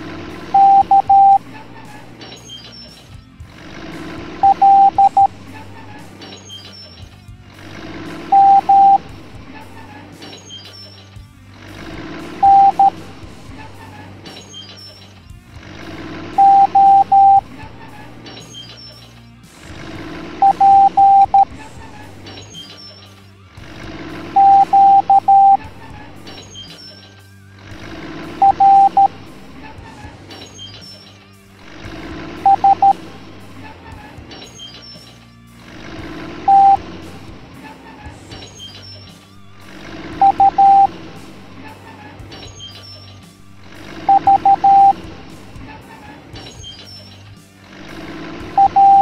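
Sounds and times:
background music: 0.0 - 49.0
morse code beeps: 0.5 - 1.4, 4.4 - 5.4, 8.3 - 9.1, 12.4 - 13.2, 16.4 - 17.5, 20.4 - 21.6, 24.3 - 25.7, 28.4 - 29.3, 32.4 - 33.2, 36.4 - 37.0, 40.2 - 41.2, 44.0 - 45.2, 48.5 - 49.0.

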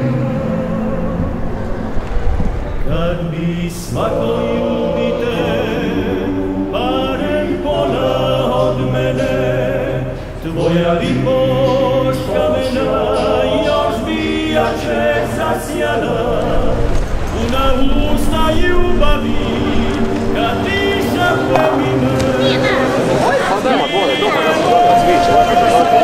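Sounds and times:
choir singing in harmony: 0.0 - 26.0.

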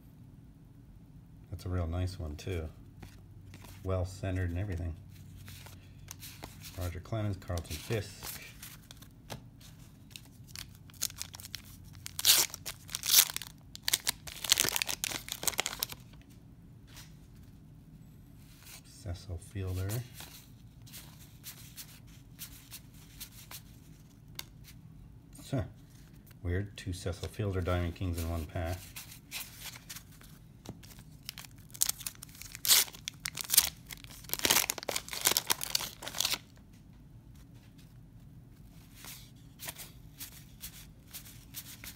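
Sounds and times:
crinkling paper tears: 10.5 - 16.1, 30.9 - 36.6
paper wrapper being torn open: 10.5 - 16.2, 30.9 - 36.6.

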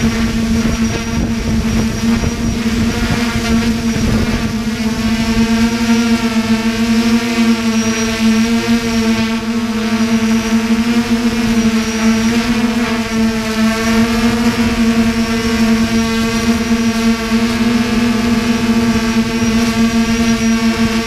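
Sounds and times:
drone motors buzzing: 0.0 - 21.0.

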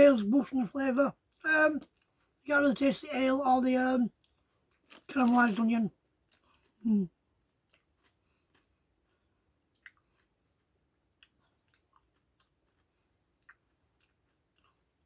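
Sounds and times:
person chewing a crisp: 4.2 - 5.4, 6.2 - 15.0.

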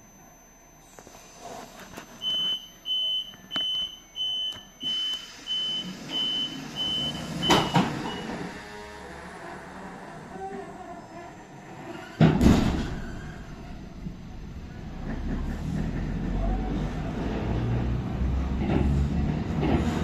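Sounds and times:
door warning beeps: 0.0 - 8.6
door shutting bang: 12.2 - 14.2.

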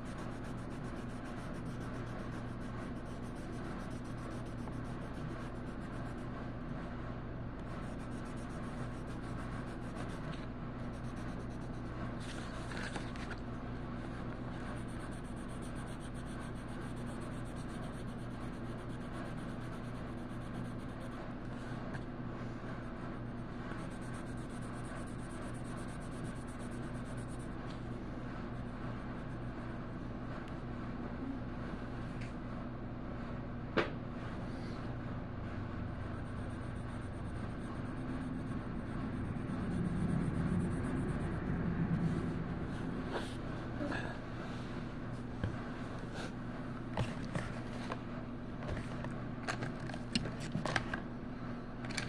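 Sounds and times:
colouring on paper: 0.0 - 6.3, 7.7 - 12.6, 14.6 - 21.2
low hum: 0.0 - 21.2, 34.4 - 46.0.

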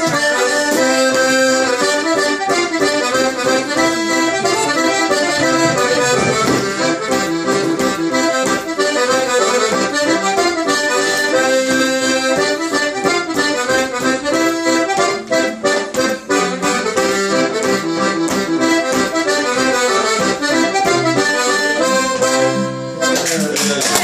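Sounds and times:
button accordion playing a tune: 0.0 - 24.0
acoustic guitar strumming: 2.5 - 11.4.

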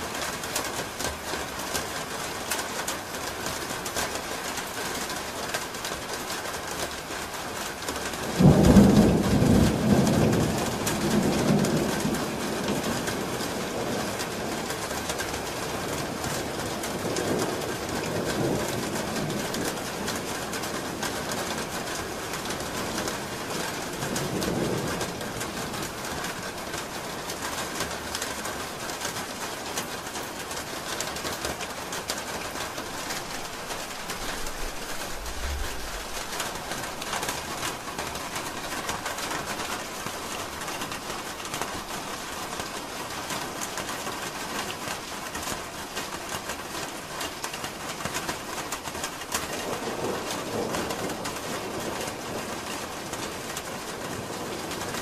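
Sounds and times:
rain falling on a roof: 0.0 - 55.0
short deep rumble: 34.5 - 36.7.

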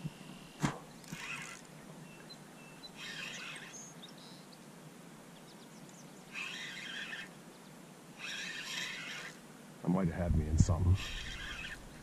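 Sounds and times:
fishing reel cranking: 1.0 - 1.7, 3.0 - 3.8, 6.3 - 7.3, 8.2 - 9.4, 11.0 - 12.0
faint bird chirps: 2.0 - 4.7.

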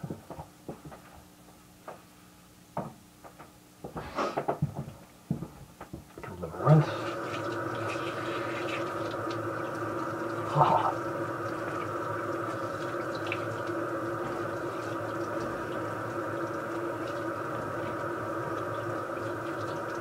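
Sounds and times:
tap water running into sink: 6.2 - 20.0
rinsing face by hand: 6.5 - 20.0.

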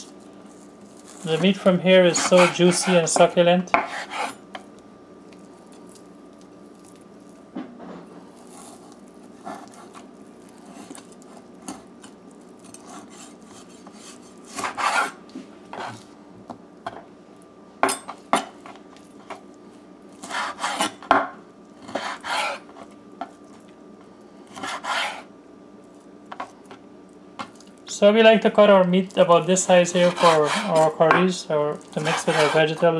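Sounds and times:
faint steady hum: 0.0 - 32.9
knife scraping through meat: 1.0 - 3.2, 3.8 - 4.4, 8.4 - 11.4, 12.6 - 16.1, 20.2 - 21.0, 21.8 - 23.0, 24.5 - 25.3, 29.6 - 31.0, 31.8 - 32.9.

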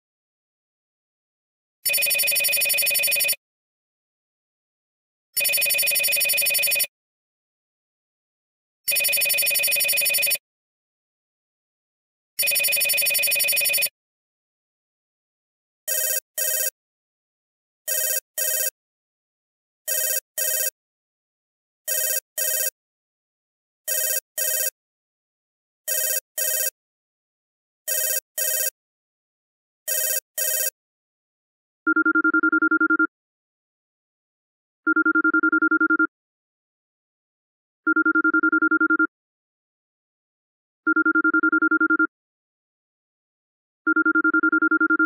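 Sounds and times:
long electronic phone ring: 1.9 - 3.4, 5.4 - 6.9, 8.9 - 10.4, 12.4 - 13.9, 15.9 - 16.8, 17.9 - 18.8, 19.9 - 20.8, 21.9 - 22.8, 23.9 - 24.8, 25.9 - 26.8, 27.9 - 28.8, 29.9 - 30.8, 31.9 - 33.1, 34.9 - 36.1, 37.9 - 39.1, 40.9 - 42.1, 43.9 - 45.0
two-tone phone ring: 1.9 - 3.4, 5.4 - 6.9, 8.9 - 10.4, 12.4 - 13.9, 15.9 - 16.8, 17.9 - 18.8, 19.9 - 20.8, 21.9 - 22.8, 23.9 - 24.8, 25.9 - 26.8, 27.9 - 28.8, 29.9 - 30.8, 31.9 - 33.1, 34.9 - 36.1, 37.9 - 39.1, 40.9 - 42.1, 43.9 - 45.0.

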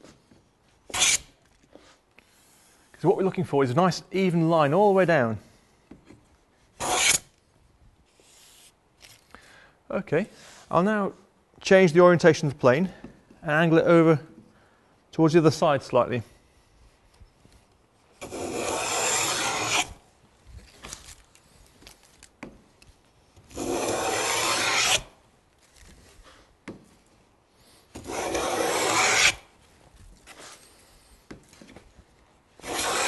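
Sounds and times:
plane shaving wood with rasping hiss: 6.8 - 7.2, 18.2 - 19.9, 23.5 - 25.0, 27.9 - 29.4, 32.6 - 33.0.

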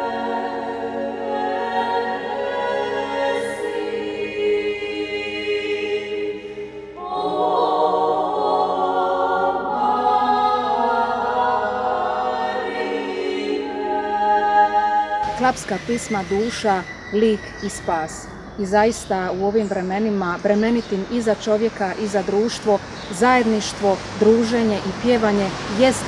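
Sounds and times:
women singing in close harmony: 0.0 - 18.8.

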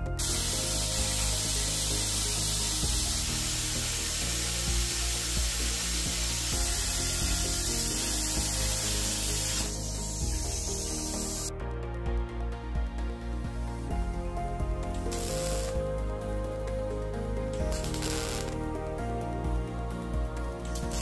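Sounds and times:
background music: 0.0 - 21.0
plasma cutter hissing: 0.2 - 11.5, 15.1 - 15.8, 17.8 - 18.5.

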